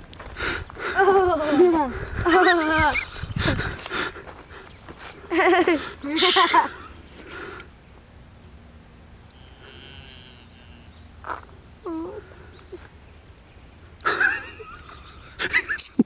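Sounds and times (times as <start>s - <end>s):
calves bawling: 0.9s - 5.2s, 5.8s - 7.6s, 9.3s - 12.9s.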